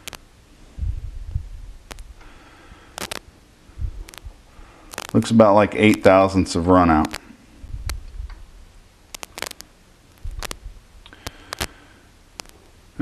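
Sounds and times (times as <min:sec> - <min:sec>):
short low rumbles: 0:00.7 - 0:02.2, 0:03.7 - 0:05.0, 0:07.5 - 0:08.7, 0:10.2 - 0:11.2
faint clicks: 0:02.9 - 0:03.2, 0:04.0 - 0:04.3, 0:07.0 - 0:08.4, 0:09.1 - 0:11.8, 0:12.4 - 0:12.7.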